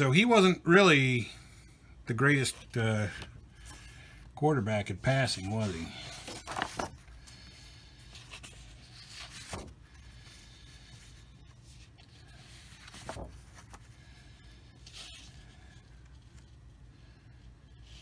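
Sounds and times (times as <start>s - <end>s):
low steady hum: 0.0s - 18.0s
paper cards swishing: 5.3s - 7.4s, 8.0s - 14.2s.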